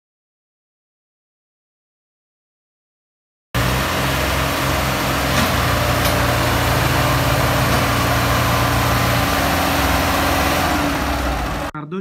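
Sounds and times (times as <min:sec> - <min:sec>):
tractor diesel engines under load: 0:03.6 - 0:11.8.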